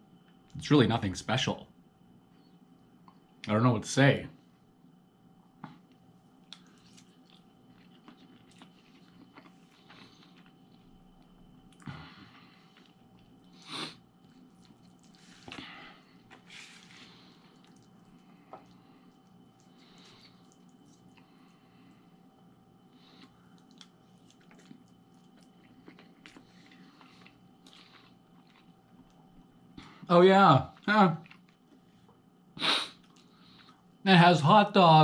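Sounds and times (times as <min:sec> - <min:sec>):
person chewing: 0:05.8 - 0:22.0, 0:22.8 - 0:29.2, 0:30.8 - 0:31.8, 0:32.8 - 0:33.8.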